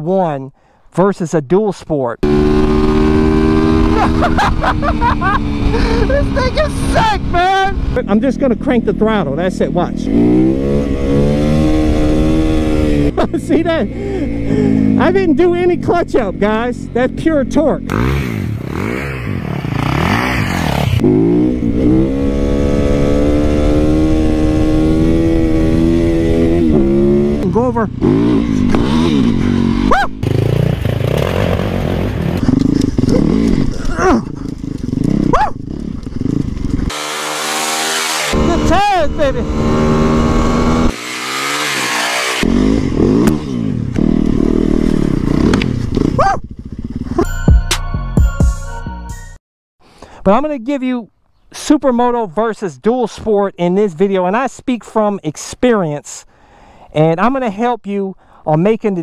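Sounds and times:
motorcycle engine revving: 0:02.2 - 0:47.3.

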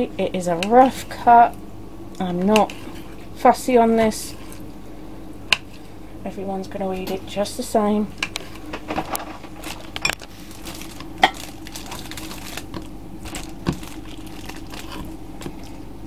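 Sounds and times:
plastic crinkling: 0:08.4 - 0:15.8.

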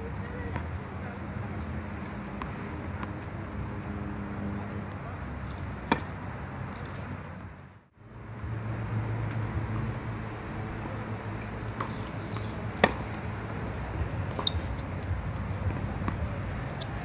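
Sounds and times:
tennis ball struck by racket: 0:05.8 - 0:06.2, 0:11.5 - 0:17.0.

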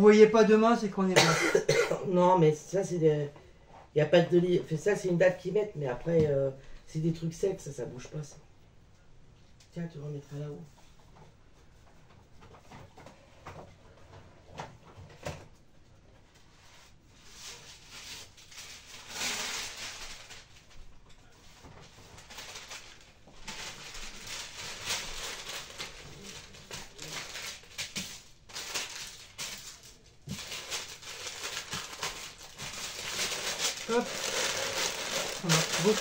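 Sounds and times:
paper rustling and crinkling: 0:16.2 - 0:36.0.

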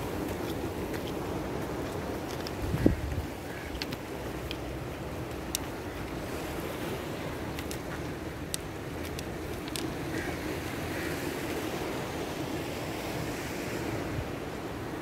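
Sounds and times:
wind buffeting microphone: 0:00.0 - 0:10.3
sea surf washing on shore: 0:00.0 - 0:15.0
faint sharp clicks: 0:03.7 - 0:04.7, 0:05.3 - 0:05.8, 0:07.5 - 0:09.9.

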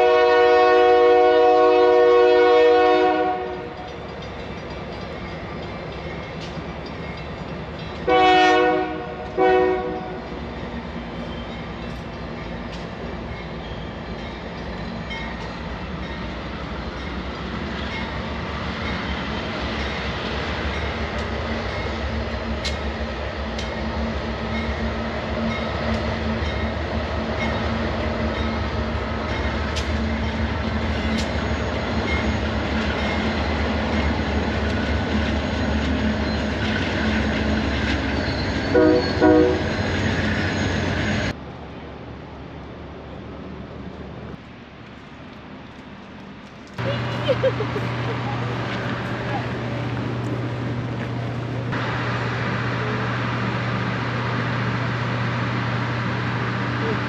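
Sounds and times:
train horn blast: 0:00.0 - 0:03.8, 0:08.1 - 0:10.3, 0:38.7 - 0:39.8
diesel locomotive engine drone: 0:00.0 - 0:57.0.

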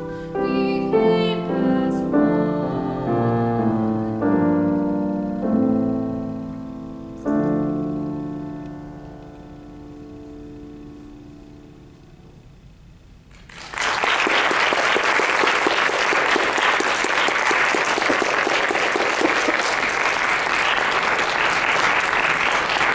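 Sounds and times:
piano notes: 0:00.0 - 0:13.0
audience applause: 0:13.3 - 0:22.9.

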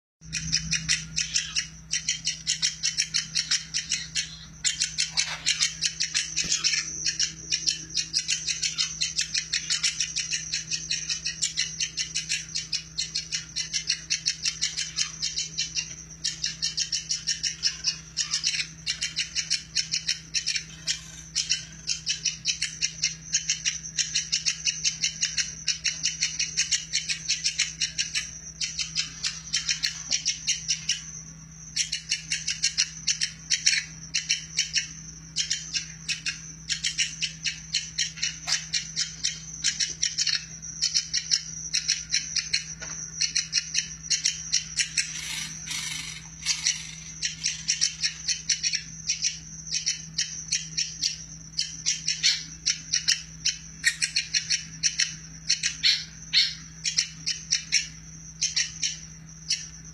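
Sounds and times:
woodpecker rattling call: 0:00.2 - 0:59.6.

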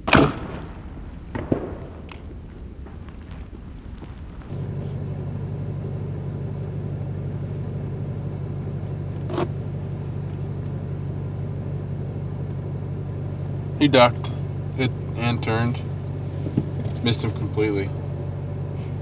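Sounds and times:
vehicle idling hum: 0:04.4 - 0:19.0.

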